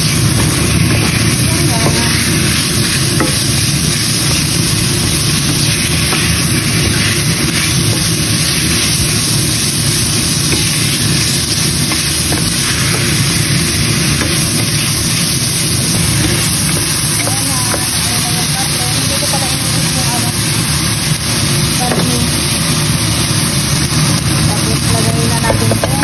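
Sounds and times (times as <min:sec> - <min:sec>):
spatula scraping pan: 0:00.0 - 0:19.8
meat sizzling in a frying pan: 0:00.0 - 0:26.0.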